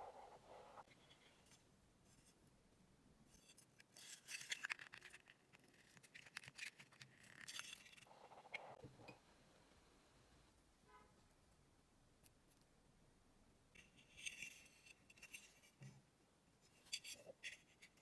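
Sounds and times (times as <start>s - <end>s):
small parts scraping and clicking: 3.3s - 8.8s, 13.8s - 15.8s, 16.7s - 18.0s.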